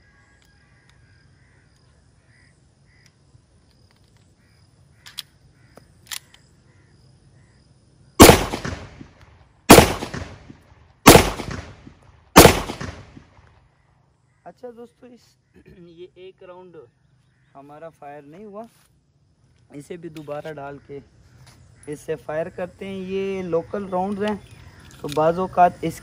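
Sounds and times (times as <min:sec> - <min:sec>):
pistol shots echoing: 0:08.2 - 0:13.4.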